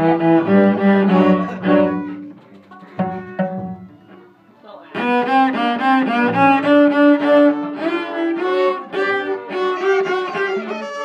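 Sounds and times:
violin and cello playing: 0:00.0 - 0:11.0.

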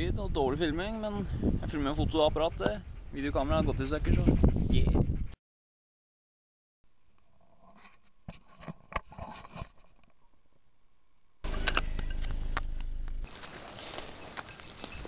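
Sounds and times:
low rumble: 0:11.4 - 0:13.4
rustling: 0:11.5 - 0:15.0.

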